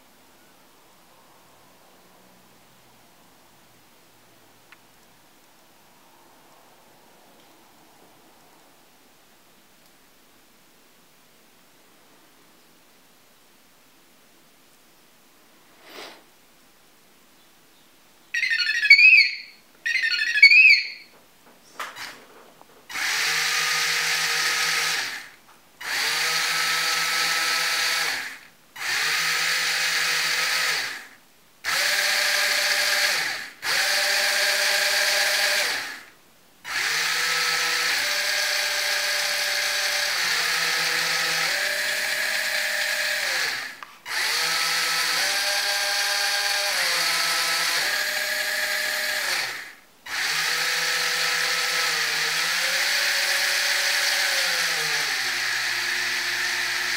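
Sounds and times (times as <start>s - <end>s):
small gear motors whining: 22.9s - 56.9s.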